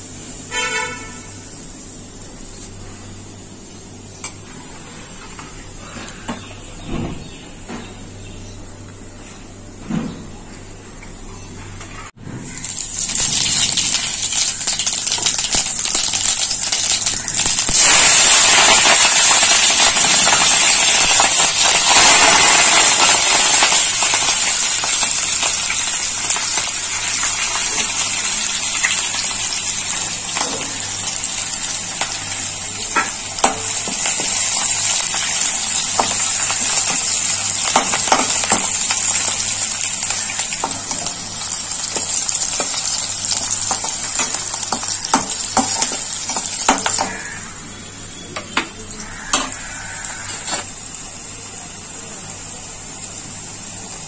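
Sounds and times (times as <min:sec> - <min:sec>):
spices sizzling in hot oil: 0:12.5 - 0:54.0
crackles and pops: 0:12.6 - 0:27.9.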